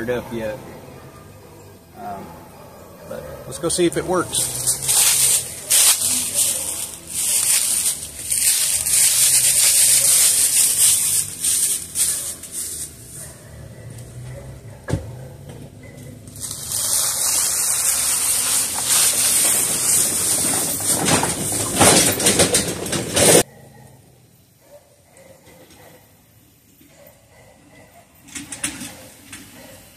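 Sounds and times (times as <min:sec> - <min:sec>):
car engine running low: 0:00.0 - 0:23.5
steady high hiss: 0:03.8 - 0:13.2, 0:16.3 - 0:20.1.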